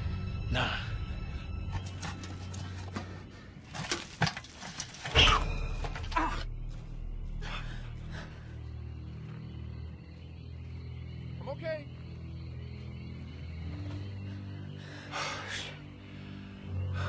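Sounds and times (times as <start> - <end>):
deep low rumble: 5.2 - 10.8
low steady drone: 5.2 - 17.0.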